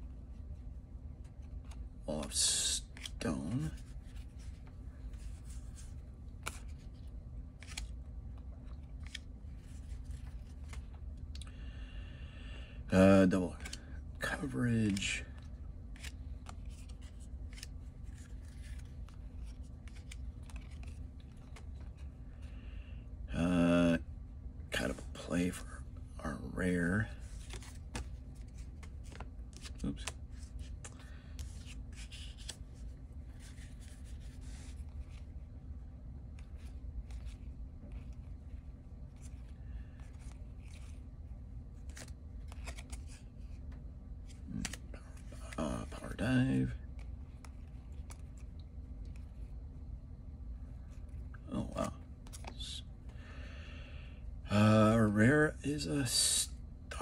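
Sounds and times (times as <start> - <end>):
cards clicking and sliding: 2.5 - 11.4, 13.5 - 22.1, 27.2 - 35.3, 36.3 - 41.0, 41.8 - 49.5, 50.9 - 53.2
paper cards sliding: 2.8 - 7.9.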